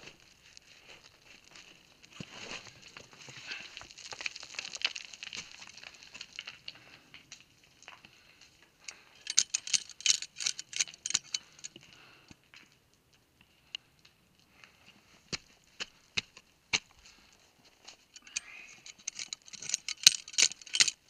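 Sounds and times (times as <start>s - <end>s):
small stones rattling: 2.6s - 6.8s, 9.2s - 11.8s, 18.0s - 21.0s.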